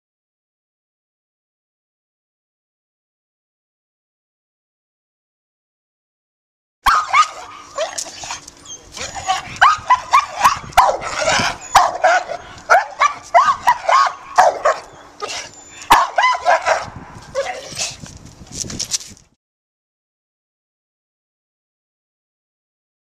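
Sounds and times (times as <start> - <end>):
dog barking and yelping: 6.9 - 18.0.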